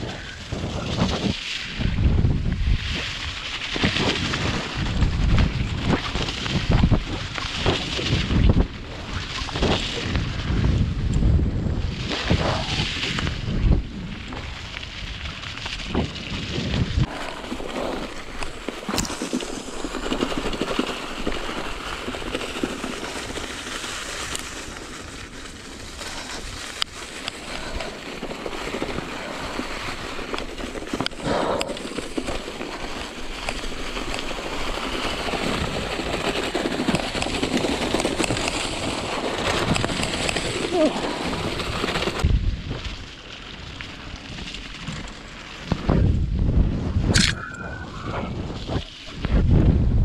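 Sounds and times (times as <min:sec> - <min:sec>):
wind buffeting microphone: 0:00.0 - 0:23.7, 0:27.4 - 0:50.0
bike tyres over leaves and dirt: 0:00.0 - 0:50.0
bike rattling and knocking: 0:15.8 - 0:46.5.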